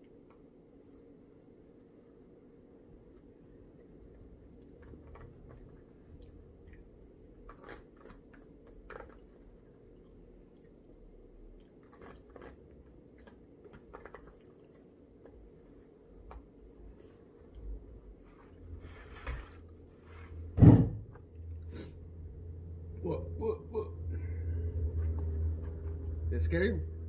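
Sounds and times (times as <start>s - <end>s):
soft chewing: 0.0s - 20.4s
steady low hum: 0.0s - 27.0s.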